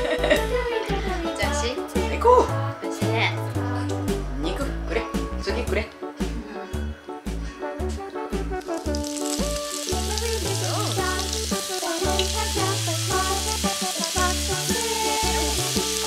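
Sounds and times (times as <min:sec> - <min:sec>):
background music with bass: 0:00.0 - 0:16.0
meat sizzling on grill: 0:08.5 - 0:16.0.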